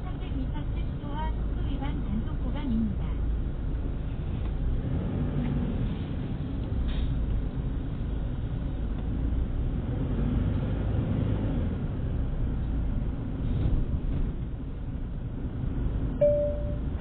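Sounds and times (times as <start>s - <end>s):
car engine and tyre rumble: 0.0s - 17.0s
short beep: 16.2s - 16.9s.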